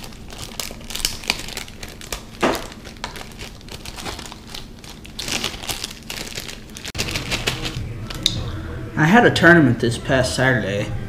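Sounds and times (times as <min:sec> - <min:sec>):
packaging crinkling: 0:00.0 - 0:08.4.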